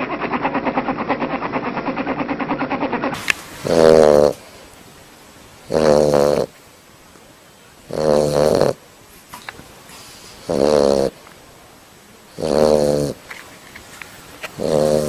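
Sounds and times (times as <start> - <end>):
dog snoring: 3.6 - 4.6, 5.6 - 6.6, 7.9 - 8.8, 10.0 - 11.2, 12.3 - 13.3, 14.5 - 15.0.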